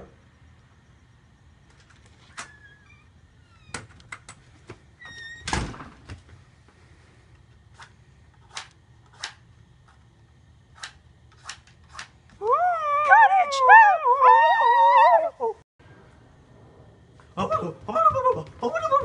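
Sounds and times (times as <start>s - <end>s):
door squeak: 2.2s - 4.0s, 5.0s - 5.8s
door thud: 5.3s - 6.2s.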